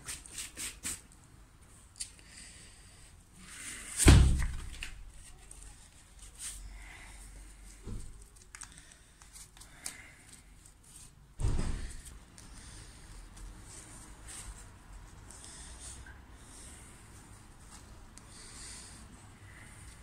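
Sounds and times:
heavy thump: 0:11.4 - 0:12.0.

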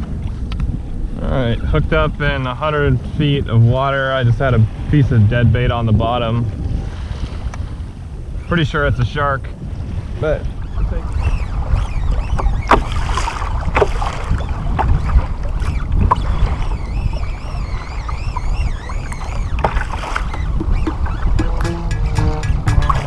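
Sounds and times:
wind buffeting microphone: 0:00.0 - 0:23.0
water splashing against kayak hull: 0:02.9 - 0:08.5, 0:09.6 - 0:23.0
faint wavering whistle: 0:10.4 - 0:13.5, 0:14.4 - 0:23.0.

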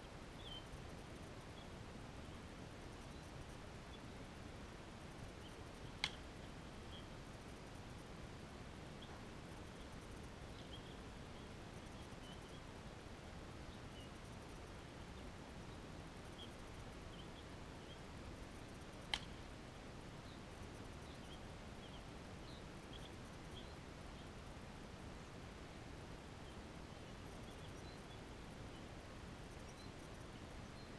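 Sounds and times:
faint background noise: 0:00.0 - 0:30.9
small bird chirps: 0:00.3 - 0:00.8, 0:09.0 - 0:12.7, 0:20.2 - 0:24.3, 0:26.4 - 0:28.9.

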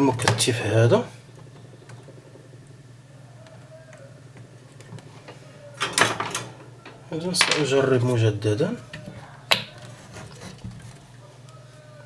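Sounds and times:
low steady hum: 0:00.0 - 0:12.0
small ticks and clicks: 0:01.3 - 0:02.8.

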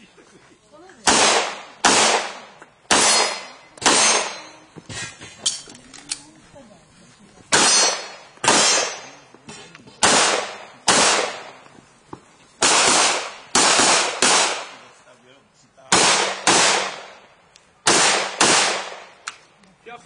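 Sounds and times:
handgun shots: 0:01.0 - 0:04.5, 0:07.5 - 0:09.1, 0:10.0 - 0:11.5, 0:15.9 - 0:17.1, 0:17.9 - 0:19.4.

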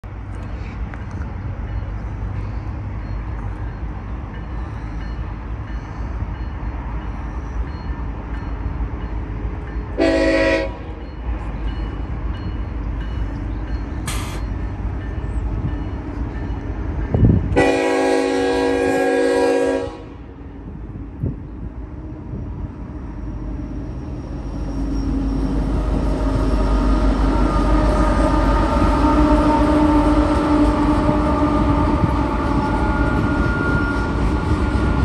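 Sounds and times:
locomotive air horn blasts: 0:10.0 - 0:10.9, 0:17.5 - 0:20.3, 0:26.9 - 0:34.2.

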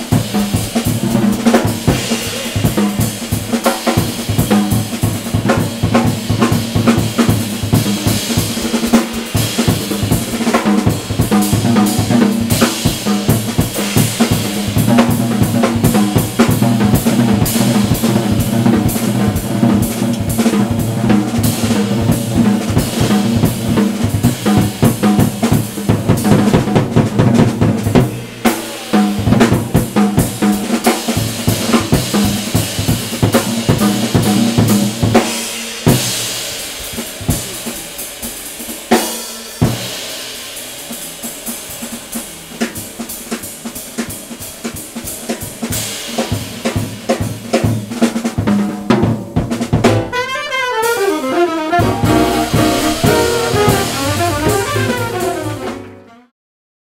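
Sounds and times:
jazz drum kit solo: 0:00.0 - 0:56.3
cymbal wash: 0:01.6 - 0:05.2, 0:28.0 - 0:31.4, 0:51.8 - 0:55.0.

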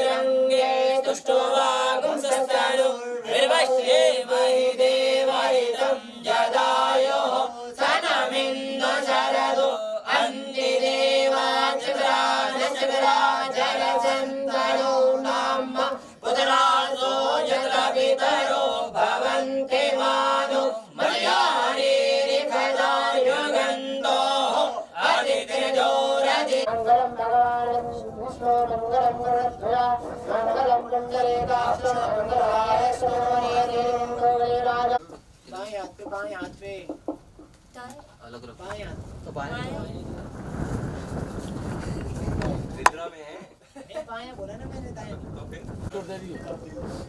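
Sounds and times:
voices chanting together: 0:00.0 - 0:35.2.

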